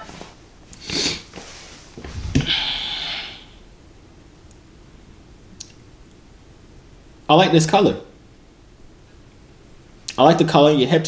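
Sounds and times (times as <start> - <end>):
hissing breath out: 2.0 - 3.6
man exhaling through nose: 2.0 - 3.6
low bump: 2.0 - 3.7.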